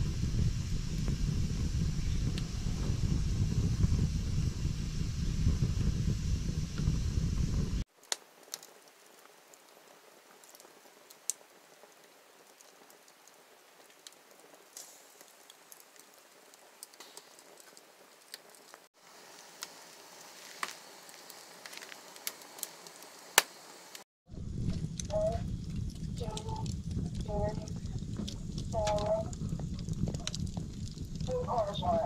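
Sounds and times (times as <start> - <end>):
low rumble: 0.0 - 7.8, 24.3 - 32.0
fire crackling and popping: 0.0 - 32.0
wood fire hissing: 0.0 - 32.0.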